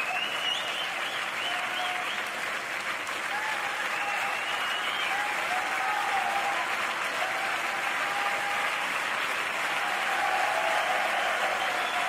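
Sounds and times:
crowd clapping: 0.0s - 12.0s
crowd cheering and calling out: 3.2s - 12.0s.

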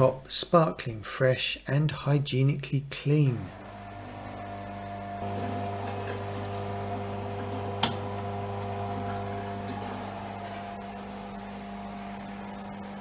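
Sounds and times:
washing machine humming: 3.4s - 13.0s.

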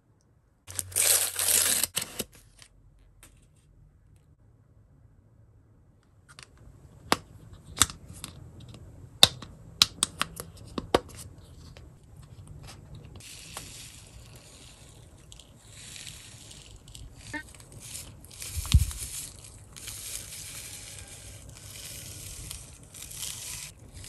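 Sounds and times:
wrapping crinkling: 0.7s - 2.6s, 13.2s - 24.0s.

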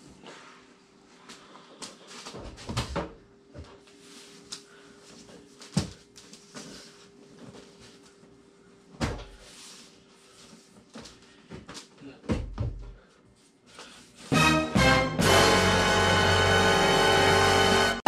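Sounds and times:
music: 14.3s - 18.0s.

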